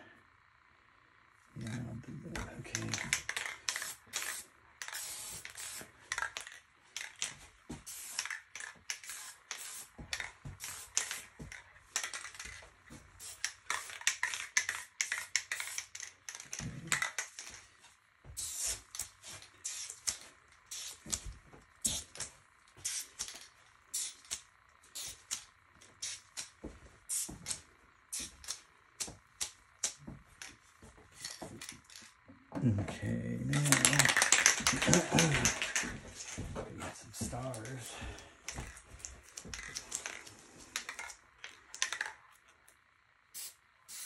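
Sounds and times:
spray paint can hissing: 2.7s - 12.6s, 13.2s - 17.6s, 18.3s - 30.0s, 33.6s - 35.9s, 43.3s - 44.0s.

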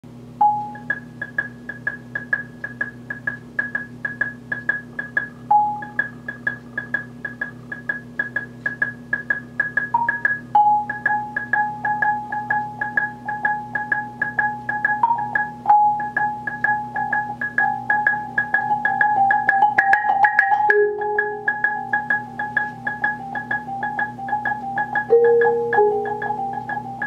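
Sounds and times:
marimba lower notes: 9.9s - 27.0s
marimba high repeated notes: 16.9s - 27.0s.

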